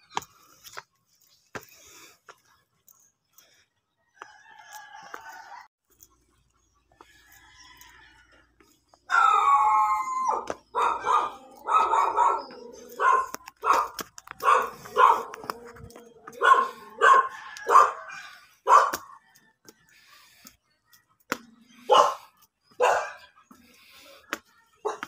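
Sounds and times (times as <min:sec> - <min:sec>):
dog barking and howling: 0:09.1 - 0:19.2, 0:21.8 - 0:23.4, 0:24.7 - 0:25.0.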